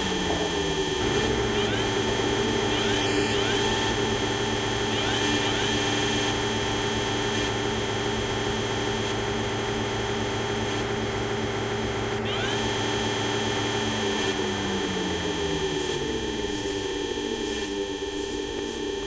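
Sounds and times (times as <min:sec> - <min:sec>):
crane winch whines: 0:00.0 - 0:07.3
machinery drone: 0:00.0 - 0:19.0.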